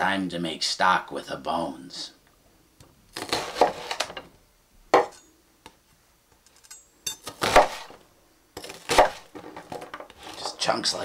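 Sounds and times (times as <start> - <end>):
knife chopping on wooden board: 7.3 - 8.0, 8.6 - 9.3.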